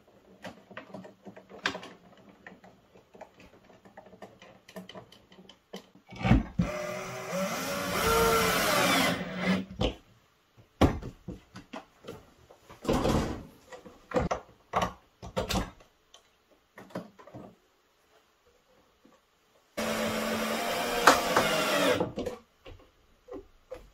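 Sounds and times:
cordless drill driving a screw: 6.6s - 9.6s, 19.8s - 22.1s.

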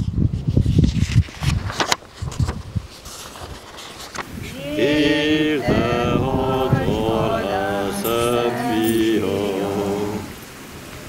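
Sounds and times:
voices singing a hymn: 4.4s - 10.6s.

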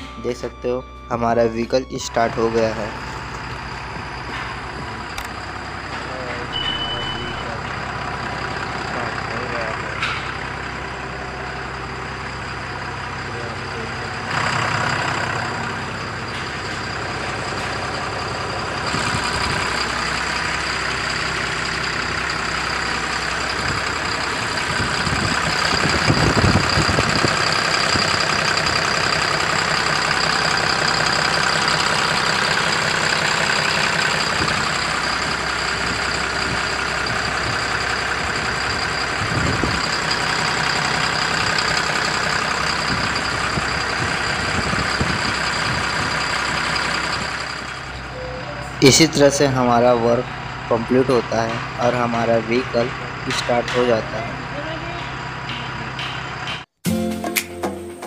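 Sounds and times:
steady high whine: 0.0s - 20.5s
diesel truck engine idling: 0.0s - 56.7s.

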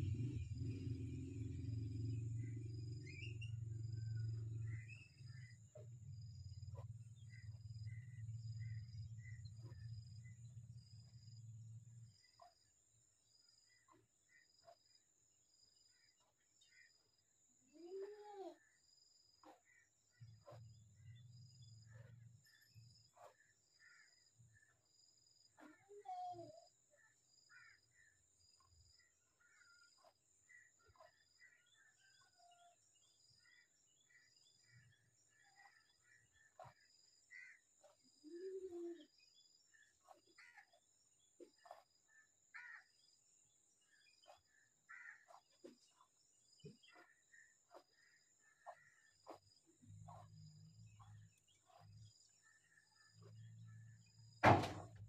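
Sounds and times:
short bird chirps: 25.5s - 40.8s, 41.4s - 43.0s.

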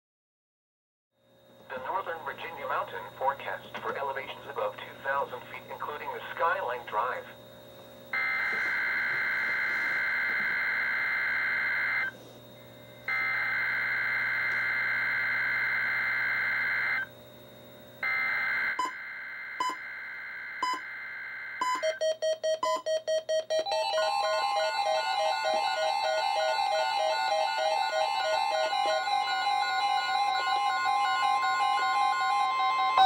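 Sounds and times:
weather radio beeps: 1.7s - 7.4s
pulsing beeps: 18.0s - 33.0s.

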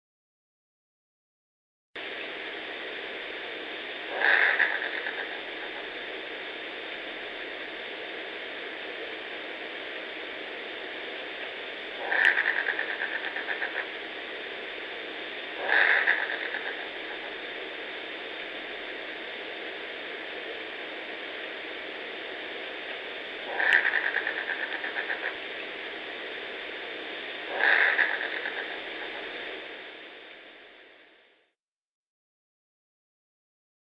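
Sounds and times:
steady hiss: 2.0s - 31.5s
creature call with stuttering rattle: 4.1s - 5.8s, 12.0s - 13.9s, 15.6s - 17.3s, 23.4s - 25.4s, 27.5s - 29.2s.

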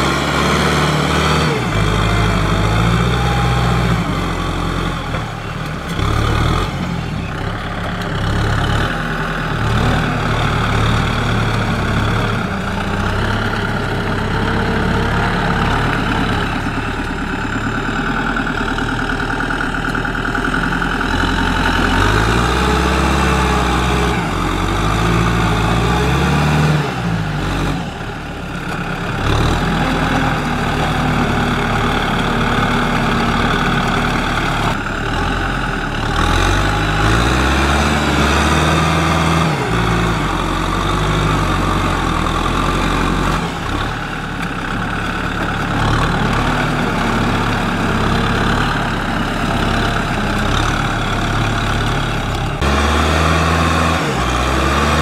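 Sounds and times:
tractor diesel engine under load: 0.0s - 55.0s.

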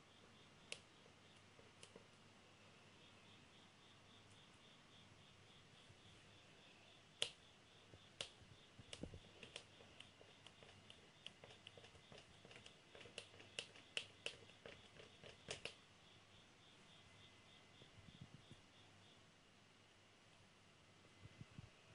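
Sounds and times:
eraser tapping on paper: 8.2s - 15.8s.

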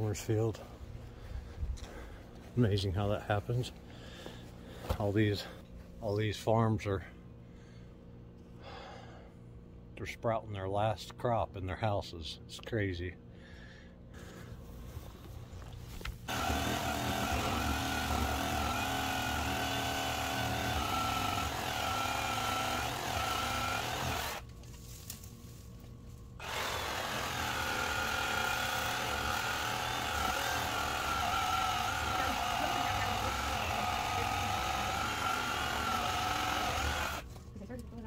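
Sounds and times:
chainsaw cutting a shrub: 16.3s - 24.5s, 26.4s - 37.3s.

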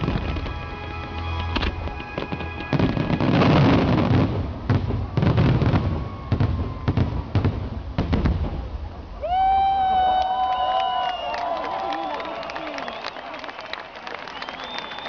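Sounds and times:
fireworks booming and crackling: 0.0s - 9.0s.

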